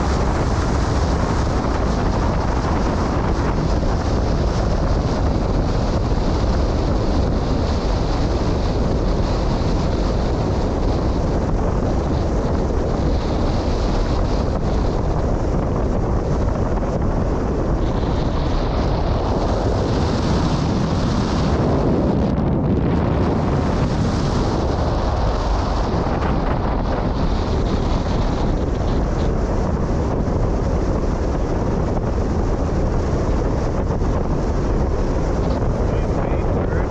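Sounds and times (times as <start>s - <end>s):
wind blowing across microphone: 0.0s - 36.9s.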